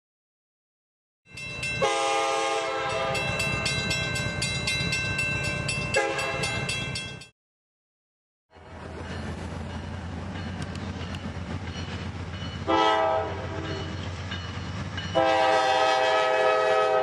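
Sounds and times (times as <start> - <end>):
railroad crossing bell ringing: 1.3 - 7.3, 8.5 - 16.8
train rumbling: 1.3 - 7.3, 8.5 - 17.0
diesel locomotive horn: 1.8 - 3.4, 6.0 - 6.7, 12.6 - 14.0, 15.1 - 17.0.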